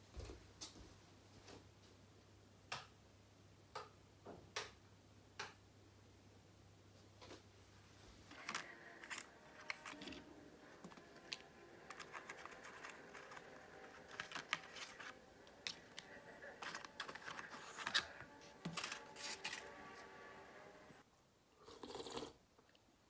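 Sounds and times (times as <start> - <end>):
foil lids crinkling: 8.3 - 20.1.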